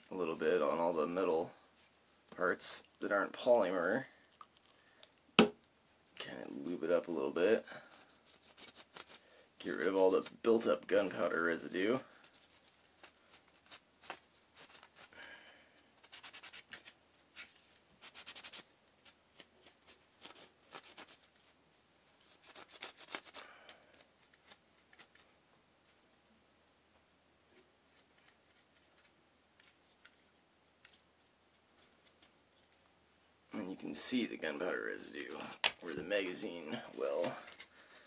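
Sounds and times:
cloth rag rubbing on pistol: 0:06.6 - 0:10.0, 0:16.0 - 0:23.6, 0:33.8 - 0:38.0.

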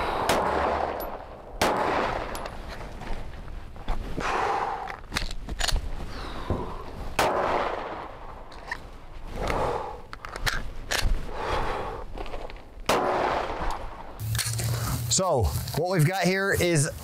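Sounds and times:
pistol shots with echo: 0:00.2 - 0:02.4, 0:07.2 - 0:08.3, 0:12.9 - 0:14.0
pistol handling clicks and knocks: 0:04.9 - 0:05.8, 0:10.1 - 0:11.2.

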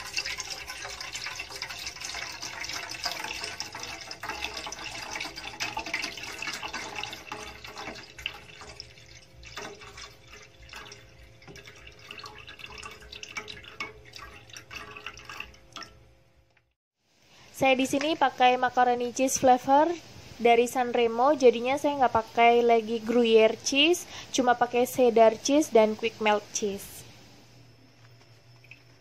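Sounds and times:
milk dripping: 0:00.0 - 0:16.0
milk pouring into a saucepan: 0:00.0 - 0:16.0.

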